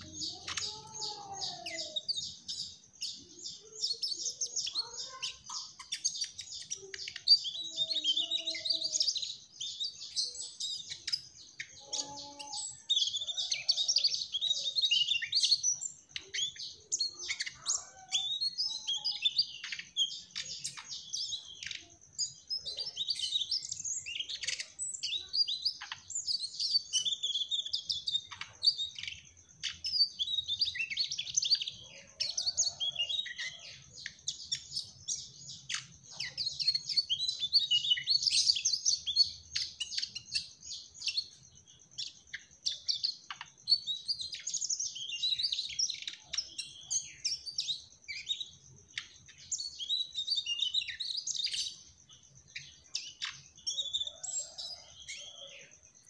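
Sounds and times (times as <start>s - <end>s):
flycatcher singing: 0.0s - 56.0s.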